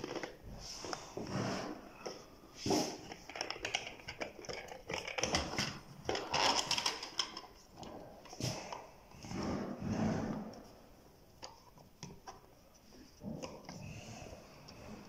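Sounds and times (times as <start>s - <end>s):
plastic cover clicks and scrapes: 0.0s - 10.7s.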